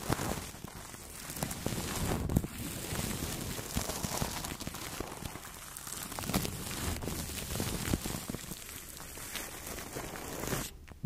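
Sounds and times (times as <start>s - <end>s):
brushes rustling on plastic film: 0.0s - 10.9s.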